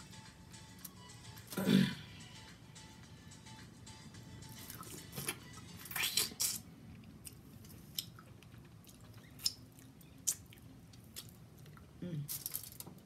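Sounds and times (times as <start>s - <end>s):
person chewing and lip-smacking: 4.6s - 12.4s.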